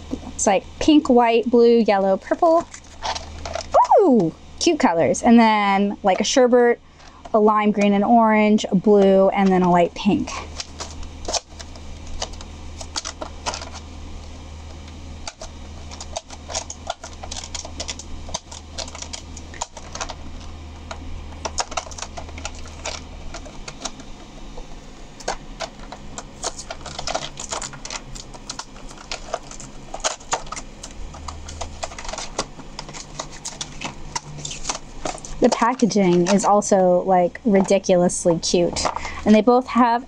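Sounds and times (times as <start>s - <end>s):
steady low hum: 0.0s - 40.0s
plastic packaging crinkling: 2.0s - 4.3s, 9.1s - 36.8s, 37.4s - 39.3s.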